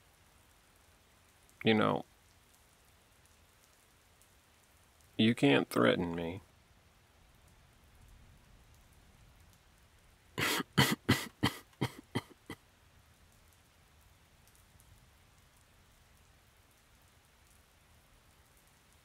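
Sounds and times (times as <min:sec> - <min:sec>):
faint steady rain: 0:00.0 - 0:19.0
man coughing: 0:10.4 - 0:12.6.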